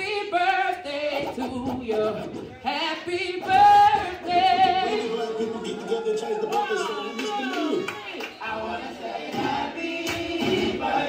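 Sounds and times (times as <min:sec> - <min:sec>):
woman singing with vibrato: 0:00.0 - 0:05.7.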